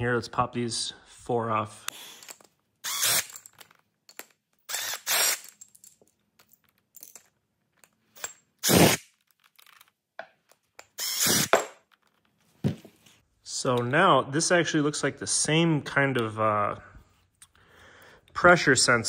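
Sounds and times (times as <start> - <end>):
impact driver bursts: 2.8 - 3.4, 4.7 - 5.4, 8.6 - 9.1, 11.0 - 11.8.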